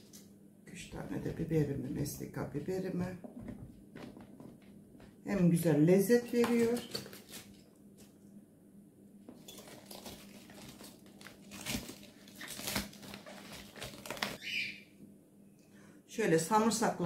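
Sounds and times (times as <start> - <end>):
cabbage leaves rustling in plastic jar: 9.4 - 14.6.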